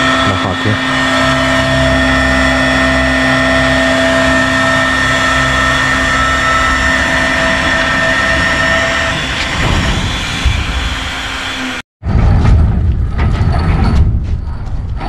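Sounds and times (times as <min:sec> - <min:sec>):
power drill whining: 0:00.0 - 0:11.8
dense grinding noise: 0:00.0 - 0:15.0.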